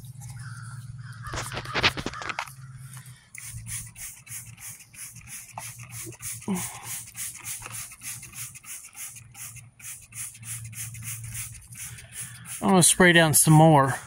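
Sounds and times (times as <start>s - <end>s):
spray bottle hissing: 3.4s - 13.2s.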